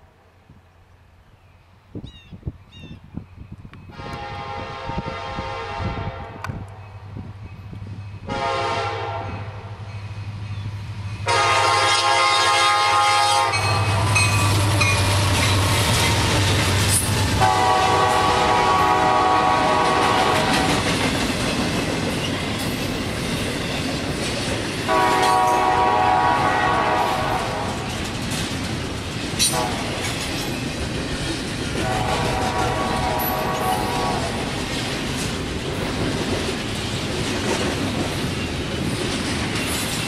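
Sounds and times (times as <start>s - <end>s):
locomotive engine rumble: 2.8s - 40.0s
train horn: 3.9s - 6.7s, 8.2s - 9.8s, 11.2s - 16.0s, 17.4s - 21.0s, 24.9s - 27.9s, 29.4s - 30.1s, 31.8s - 34.6s
train wheels clickety-clack: 13.4s - 40.0s.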